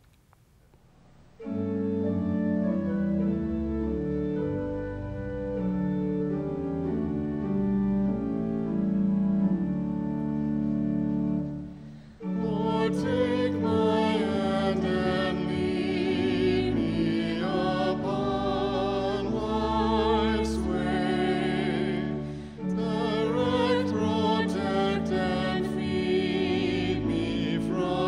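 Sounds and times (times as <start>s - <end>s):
keyboard chords: 1.4s - 28.0s
voices singing with vibrato: 12.2s - 28.0s.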